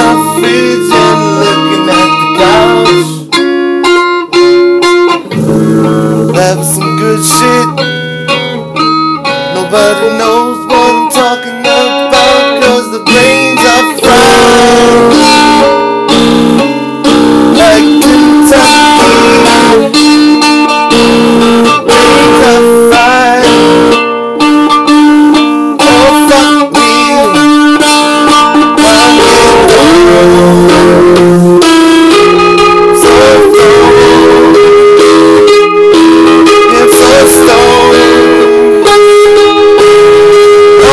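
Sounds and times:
guitar music with bending notes: 0:00.0 - 0:40.9.

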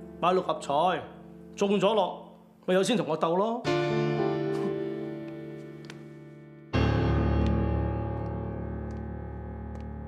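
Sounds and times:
sustained keyboard chords: 0:03.6 - 0:10.0.

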